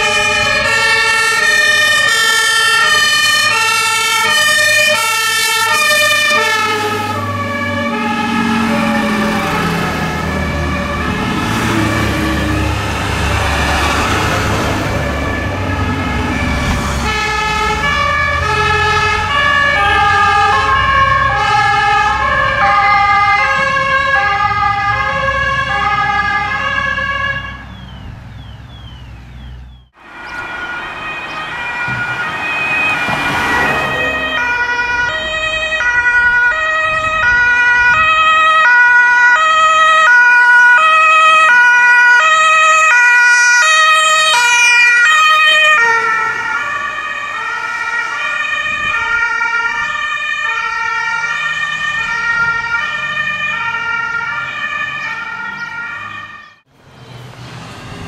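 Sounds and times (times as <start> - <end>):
vehicle engine noise: 0.0 - 38.3, 50.9 - 58.0
two-tone siren: 0.0 - 56.7.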